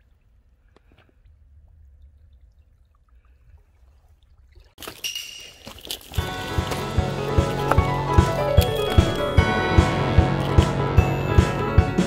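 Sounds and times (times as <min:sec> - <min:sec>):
seawater sloshing on rocks: 0:04.6 - 0:11.2.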